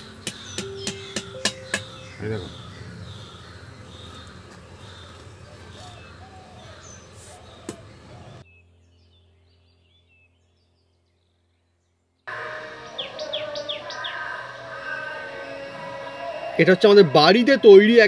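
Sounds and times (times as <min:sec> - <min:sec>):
small birds chirping: 0:00.0 - 0:12.2, 0:12.8 - 0:14.6.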